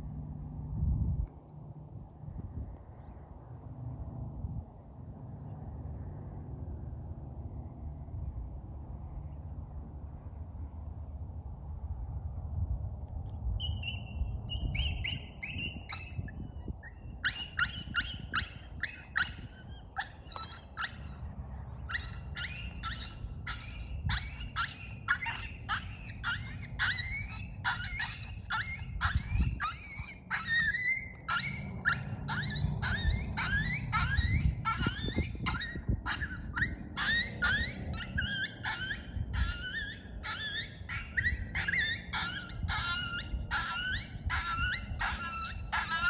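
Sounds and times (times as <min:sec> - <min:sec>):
coyotes yipping and howling: 0:13.5 - 0:46.0.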